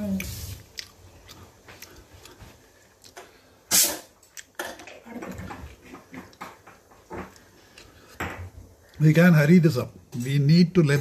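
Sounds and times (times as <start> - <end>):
short loud hiss: 3.7 - 4.2
kitchen clatter: 3.7 - 7.4.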